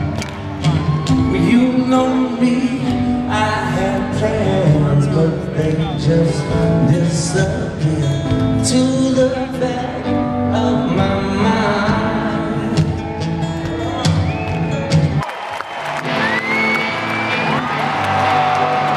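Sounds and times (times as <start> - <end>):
live rock band playing: 0.0 - 18.9
person singing: 1.0 - 13.0.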